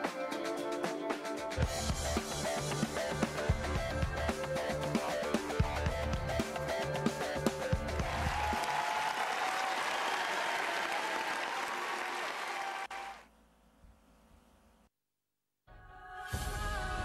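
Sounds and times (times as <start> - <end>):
audience applause: 8.0 - 13.3.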